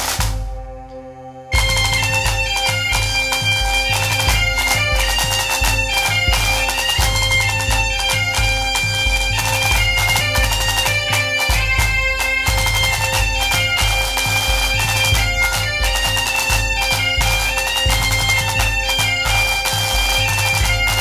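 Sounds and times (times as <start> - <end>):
low drum beat: 0.0 - 0.9, 1.5 - 21.0
bagpipe music: 0.0 - 21.0.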